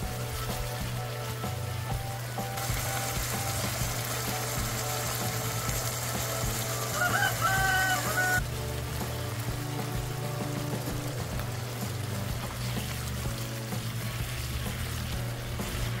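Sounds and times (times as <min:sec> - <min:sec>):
background music: 0:00.0 - 0:16.0
chicken livers sizzling in a pan: 0:00.0 - 0:16.0
loud pitched call: 0:04.8 - 0:08.4.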